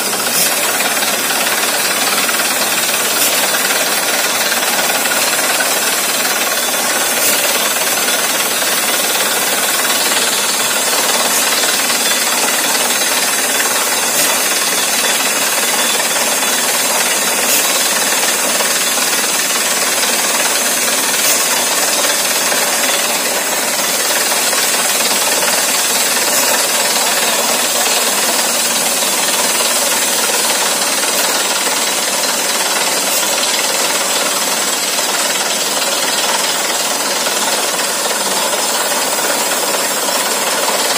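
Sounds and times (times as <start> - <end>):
drilling rig running: 0.0 - 40.9.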